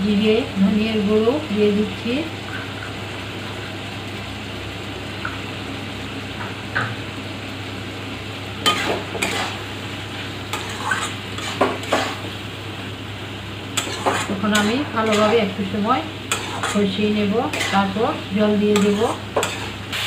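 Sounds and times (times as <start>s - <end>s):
masala sizzling in a metal pan: 0.0s - 20.0s
metal spatula scraping a pan: 8.6s - 9.6s, 10.5s - 12.2s, 13.8s - 15.5s, 16.3s - 20.0s.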